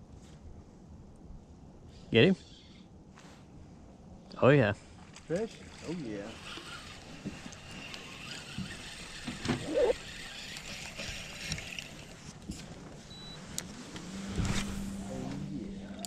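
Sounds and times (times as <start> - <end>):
low motor hum: 5.6 - 16.0
spinning reel cranking: 6.0 - 12.2.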